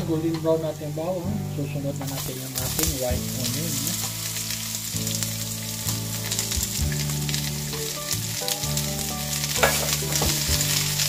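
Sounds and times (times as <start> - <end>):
onion sizzling in a pan: 0.0 - 11.0.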